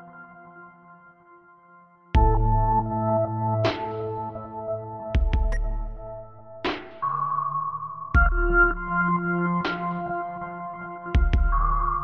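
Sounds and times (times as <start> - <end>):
synthesizer chords: 2.2 - 12.0.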